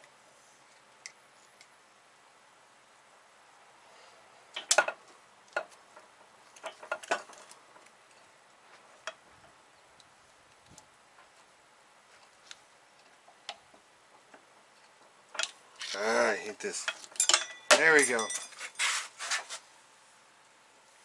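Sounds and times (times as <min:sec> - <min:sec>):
metal tools clinking and scraping: 0:16.8 - 0:19.4.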